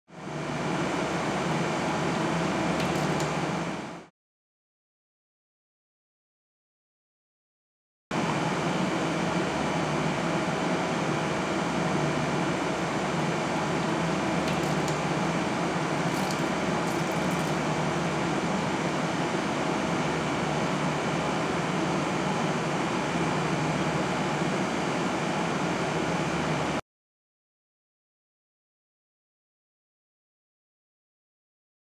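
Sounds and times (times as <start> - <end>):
ventilation noise: 0.2 - 4.1, 8.2 - 26.8.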